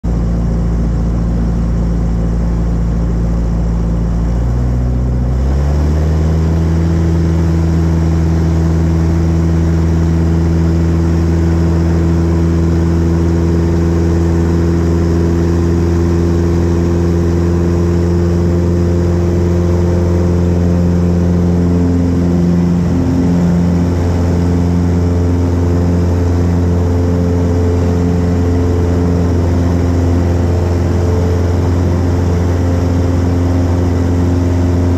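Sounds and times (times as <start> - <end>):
propeller plane engine droning: 0.0 - 34.9.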